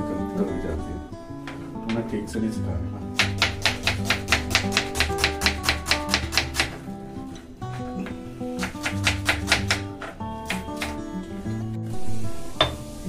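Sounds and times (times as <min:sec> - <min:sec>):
plucked guitar music: 0:00.0 - 0:13.0
knife chopping on wooden board: 0:03.2 - 0:06.8, 0:08.6 - 0:11.0.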